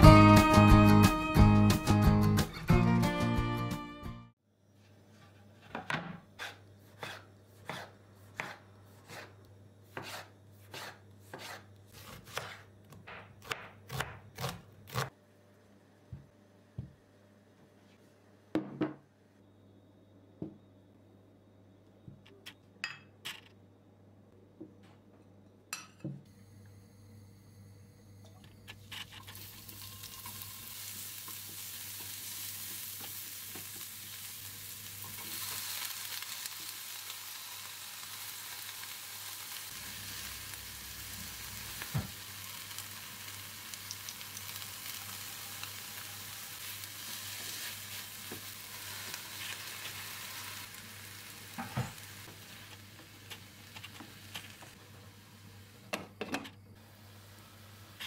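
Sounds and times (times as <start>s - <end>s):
vegetables sizzling in oil: 29.0s - 55.8s.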